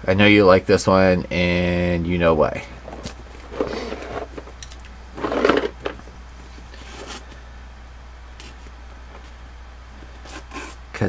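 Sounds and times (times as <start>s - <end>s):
packaging rustling and clattering: 2.8s - 6.0s.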